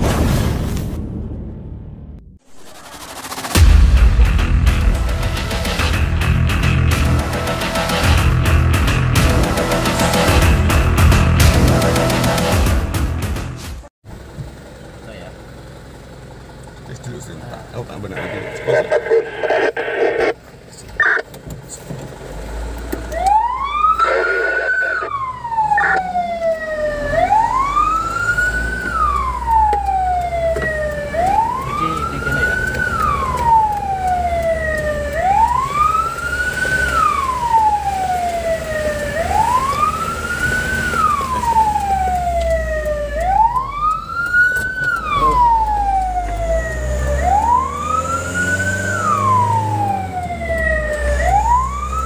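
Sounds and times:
truck engine rumbling: 0:00.0 - 0:52.0
fire truck wail siren: 0:21.0 - 0:21.2, 0:23.1 - 0:52.0.

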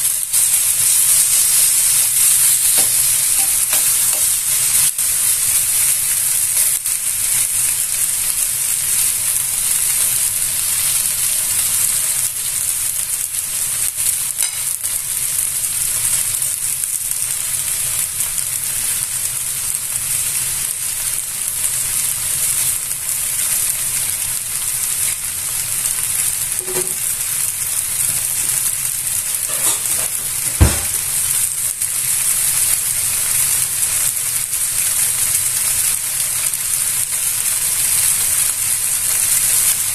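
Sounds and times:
meat sizzling in a skillet: 0:00.0 - 0:39.9
sharp knock: 0:30.5 - 0:31.0.

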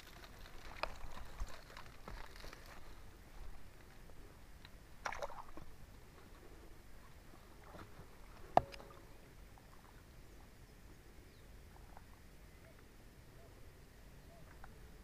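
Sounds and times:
handling rustle: 0:00.0 - 0:04.2
faint creek background: 0:00.0 - 0:15.0.

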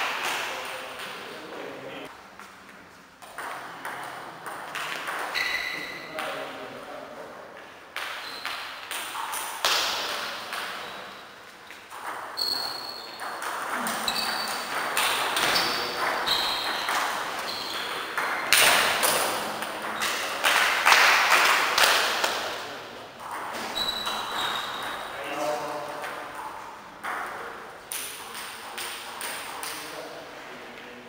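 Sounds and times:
short high squeaks: 0:05.3 - 0:06.1, 0:12.4 - 0:13.2, 0:15.4 - 0:18.0, 0:23.7 - 0:25.2.

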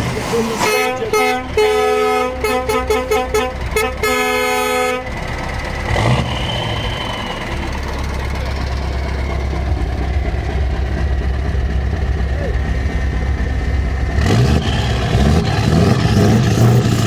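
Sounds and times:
diesel engine idling: 0:00.0 - 0:17.0
truck air horns blasting: 0:00.6 - 0:05.2.

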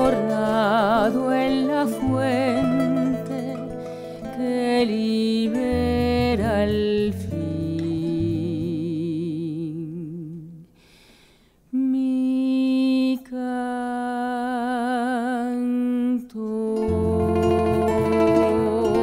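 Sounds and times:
plucked strings: 0:00.0 - 0:10.6, 0:16.4 - 0:19.0
bass: 0:00.0 - 0:10.8, 0:16.4 - 0:19.0
woman singing with vibrato: 0:00.0 - 0:10.8, 0:11.7 - 0:19.0.

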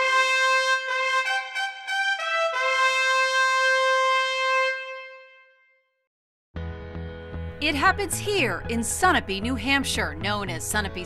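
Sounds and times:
brass fanfare: 0:00.0 - 0:05.9.

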